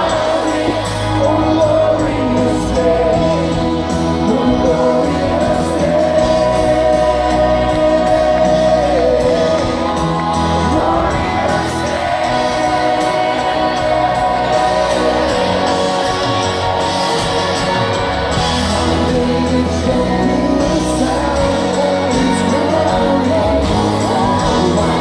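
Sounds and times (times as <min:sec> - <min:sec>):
live rock band playing: 0:00.0 - 0:25.0
man singing long notes: 0:18.5 - 0:25.0.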